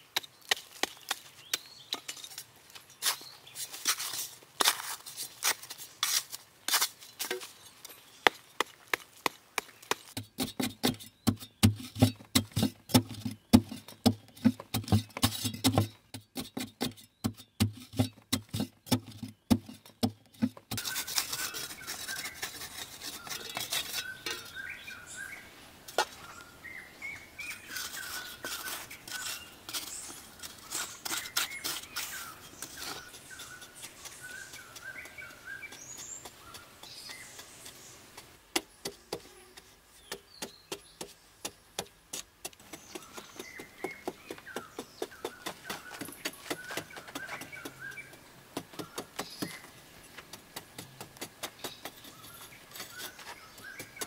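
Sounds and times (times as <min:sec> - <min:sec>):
birds chirping: 0:00.0 - 0:03.9, 0:07.3 - 0:42.0, 0:42.6 - 0:54.0
hoe chopping into hard earth: 0:08.2 - 0:21.9.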